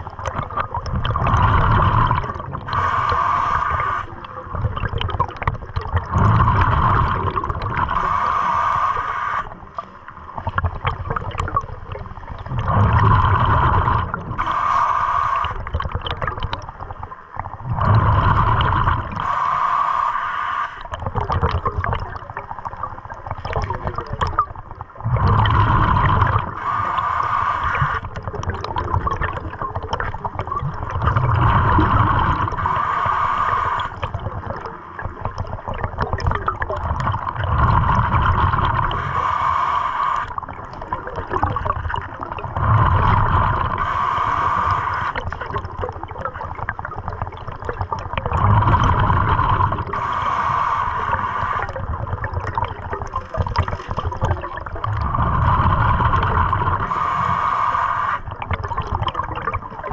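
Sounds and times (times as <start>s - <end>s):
exhaled bubbles rushing: 0.0s - 19.6s, 20.8s - 59.9s
regulator breathing hiss: 2.7s - 4.3s, 8.0s - 9.6s, 14.4s - 15.7s, 18.0s - 20.9s, 26.5s - 28.1s, 32.0s - 34.0s, 38.8s - 40.4s, 42.8s - 45.2s, 49.9s - 51.8s, 55.2s - 58.4s.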